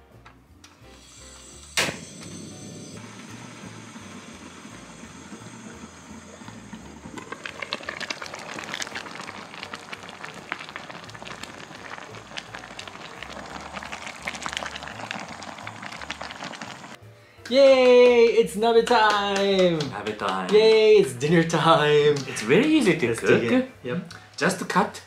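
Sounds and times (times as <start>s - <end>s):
gas burner hiss: 0.7s - 17.0s
broth simmering and bubbling: 2.0s - 17.0s.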